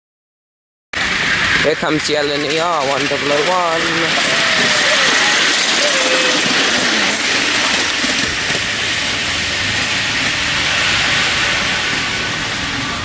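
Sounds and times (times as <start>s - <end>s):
miniature steam train passing: 1.0s - 13.0s.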